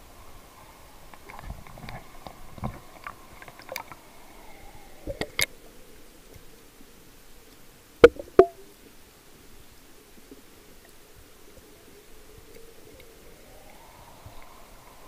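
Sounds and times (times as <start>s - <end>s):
muffled underwater wash: 0.0s - 15.0s
sharp knocks underwater: 8.0s - 8.7s.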